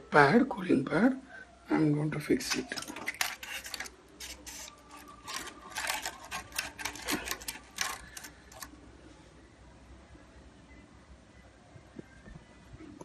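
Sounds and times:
cooling pad crackling and clicking: 2.4 - 8.8.

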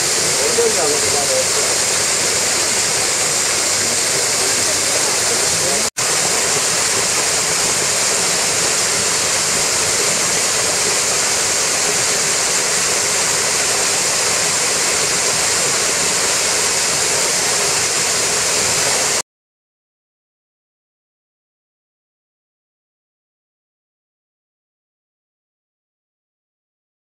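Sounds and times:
waterfall crashing into pool: 0.0 - 19.2.

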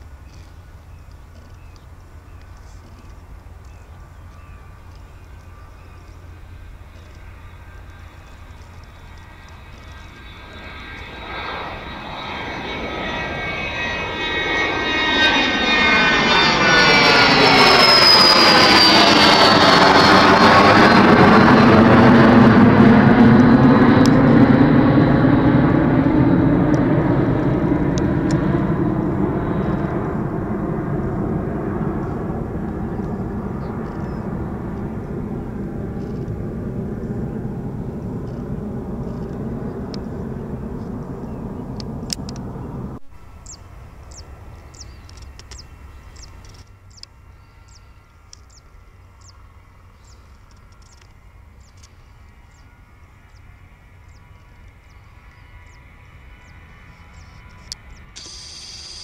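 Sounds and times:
jet engines at takeoff: 0.0 - 59.0.

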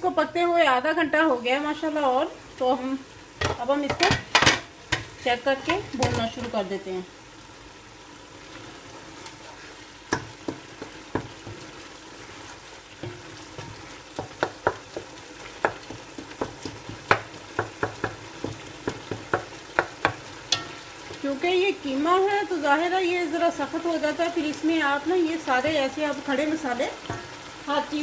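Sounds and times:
wooden spoon scraping a pot: 8.5 - 17.1.

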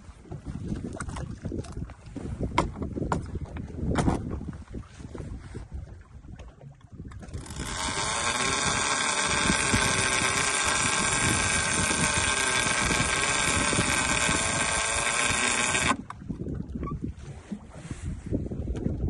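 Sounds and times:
motor whining: 7.3 - 16.1.

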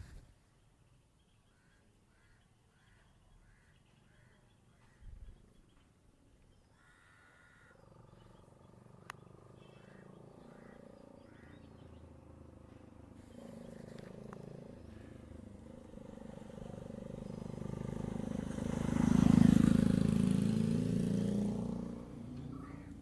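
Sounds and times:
vehicle engine passing by: 7.9 - 23.0.

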